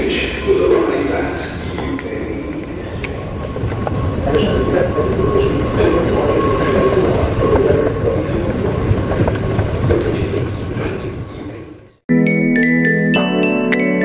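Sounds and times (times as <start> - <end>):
metro station rumble and hiss: 0.0 - 12.0
chiming background music: 12.1 - 14.0.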